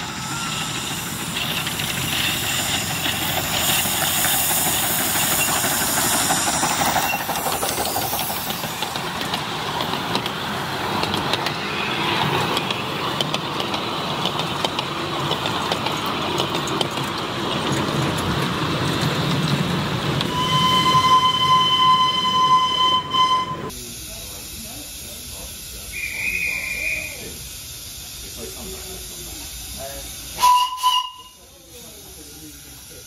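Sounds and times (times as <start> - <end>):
wheels clicking on track: 0.0 - 23.4
miniature steam train rumbling: 0.0 - 33.0
steam train whistle: 20.3 - 23.7, 25.9 - 27.3, 30.4 - 31.5.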